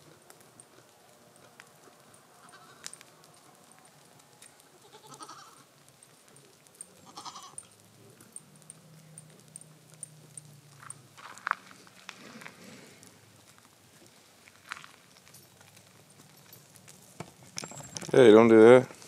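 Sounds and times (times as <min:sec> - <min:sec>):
goats bleating: 0:02.4 - 0:02.9, 0:04.7 - 0:05.7, 0:07.0 - 0:07.7.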